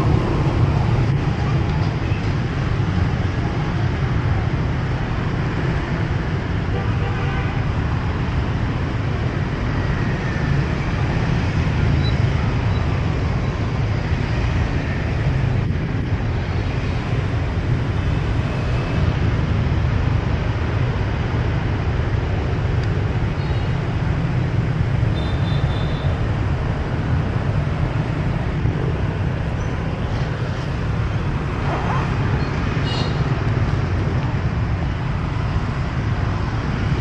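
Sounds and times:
street traffic noise: 0.0 - 37.0
motor scooters passing: 26.8 - 37.0.

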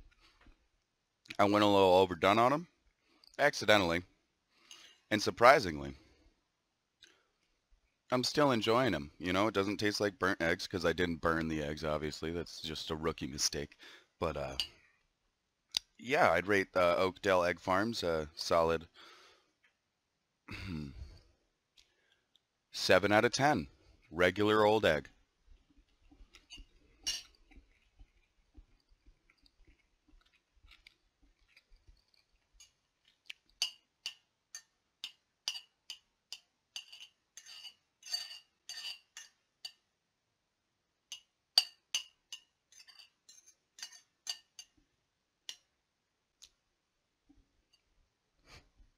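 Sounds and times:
quiet chewing: 25.5 - 33.6
fork clinking on ceramic plate: 26.4 - 27.4, 33.6 - 39.8, 41.1 - 44.8.

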